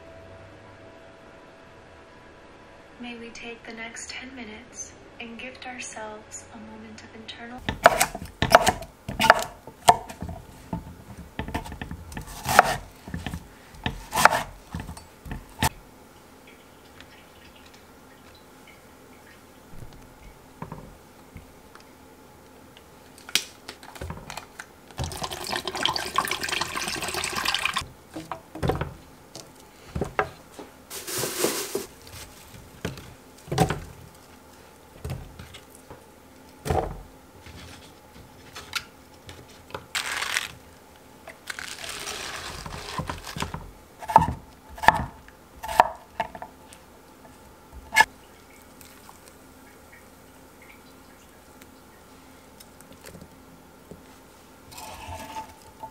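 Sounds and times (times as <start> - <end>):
knife chopping on wooden board: 7.6 - 15.8, 42.2 - 46.4
liquid pouring: 25.0 - 27.8.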